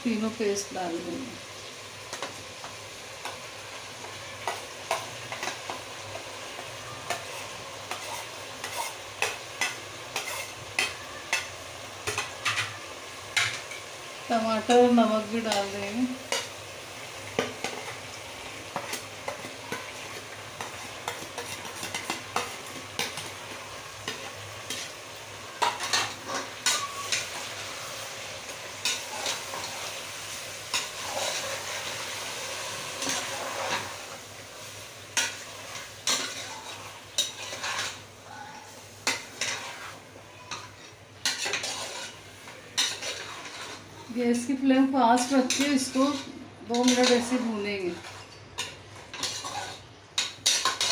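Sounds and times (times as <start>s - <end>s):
food sizzling in oil: 0.0s - 50.9s
spatula scraping and knocking pot: 7.1s - 12.8s, 18.7s - 23.4s, 35.2s - 38.0s, 39.0s - 42.2s, 42.8s - 43.8s, 45.2s - 50.9s.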